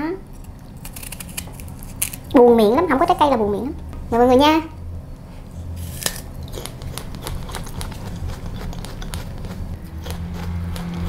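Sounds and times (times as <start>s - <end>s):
apple crunching being chewed: 0.3s - 2.3s, 5.8s - 11.0s
wet mouth clicks: 6.4s - 11.0s.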